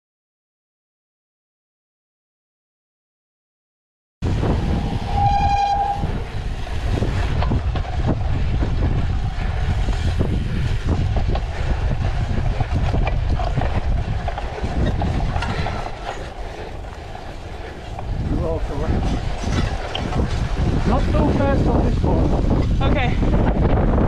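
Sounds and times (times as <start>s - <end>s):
bike rolling over tarmac and grass: 4.2s - 24.0s
wind buffeting camera: 4.2s - 24.0s
bike rattling and knocking: 4.3s - 24.0s
short pitched beep: 5.1s - 6.0s.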